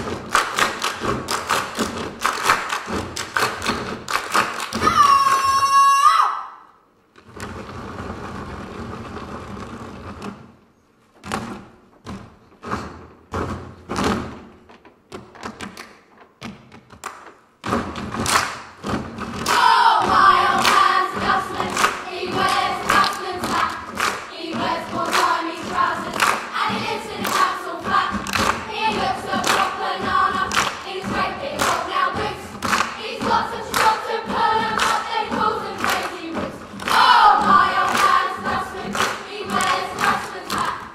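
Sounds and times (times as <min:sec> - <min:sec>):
group singing in chorus: 0:19.4 - 0:40.9.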